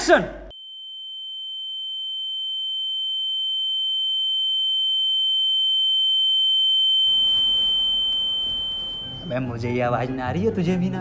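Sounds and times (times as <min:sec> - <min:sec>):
high-pitched electronic tone: 0:00.6 - 0:09.8
low electronic tone: 0:00.6 - 0:09.8
room noise: 0:07.0 - 0:09.7.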